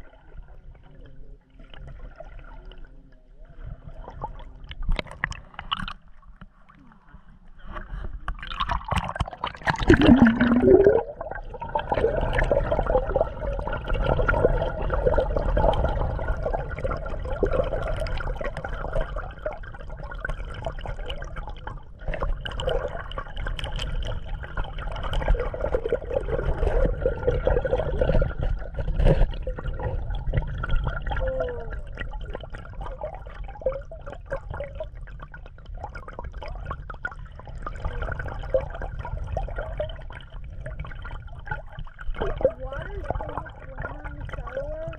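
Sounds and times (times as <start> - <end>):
low rumble of moving water: 0.0 - 44.9
rush and gurgle of water: 0.0 - 44.9.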